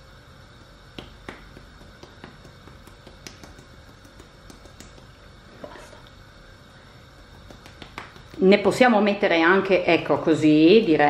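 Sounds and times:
spice jar shaking ticks: 1.0s - 5.1s.

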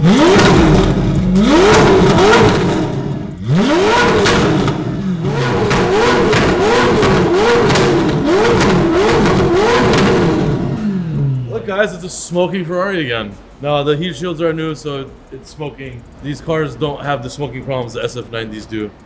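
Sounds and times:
car engine revving: 0.0s - 12.2s
exhaust cracks: 0.0s - 19.0s.

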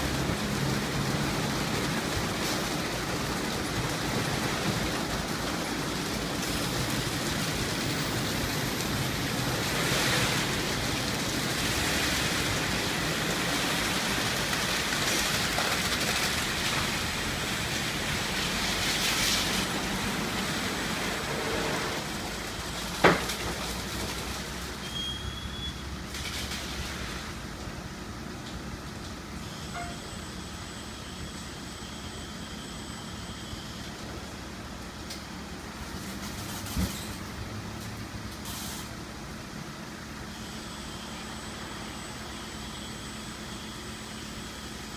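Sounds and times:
car wash brushes and water spray: 0.0s - 29.4s, 33.8s - 44.9s
short high tone: 29.7s - 30.2s.

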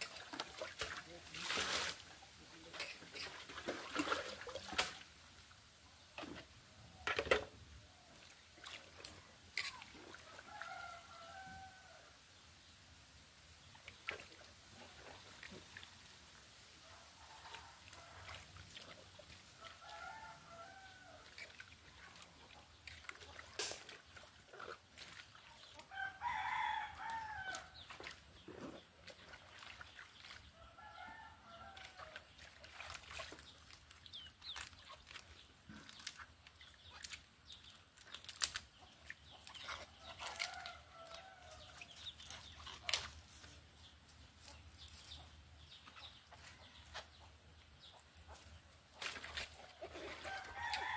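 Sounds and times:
rooster crowing: 10.4s - 12.2s, 19.6s - 21.3s, 25.9s - 27.8s, 30.6s - 32.2s, 50.2s - 50.9s.

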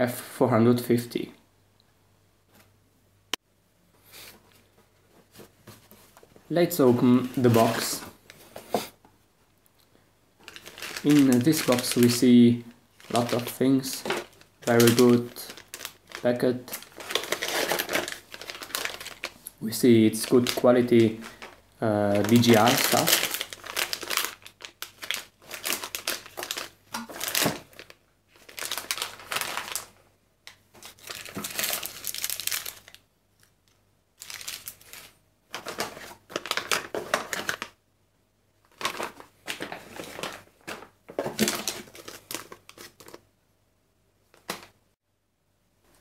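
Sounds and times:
plastic bags crinkling: 10.4s - 33.1s, 34.2s - 37.8s, 38.6s - 43.2s.

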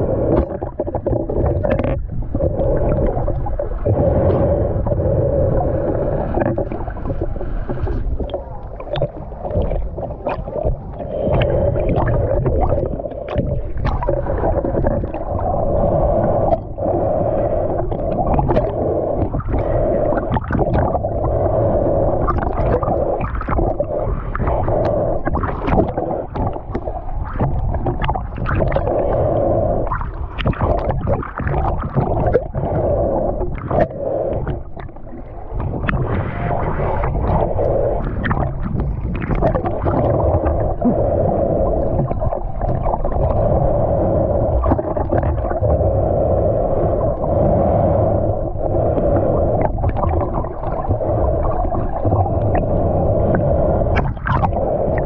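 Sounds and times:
underwater rumble and gurgling: 0.0s - 55.0s.

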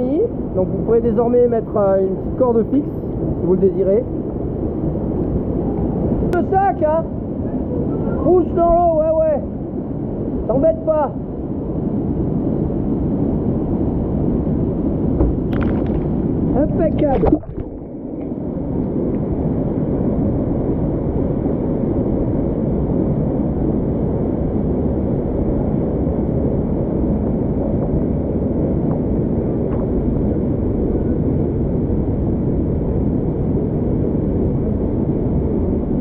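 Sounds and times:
rushing water: 15.5s - 19.4s.

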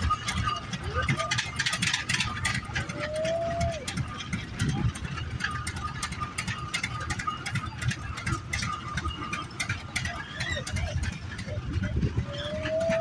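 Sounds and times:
wind buffeting microphone: 7.5s - 13.0s.

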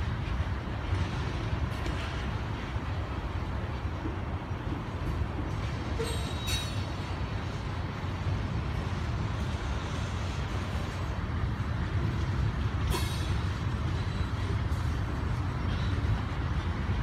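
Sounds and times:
train wheels rumbling on rail: 0.0s - 17.0s
high-pitched wheel squeal: 6.0s - 6.9s.

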